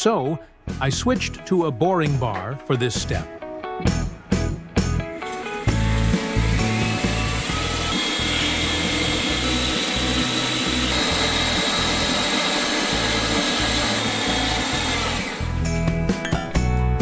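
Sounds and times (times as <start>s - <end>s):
milling machine whirring with whine: 5.1s - 15.6s
plucked guitar background music: 15.5s - 17.0s.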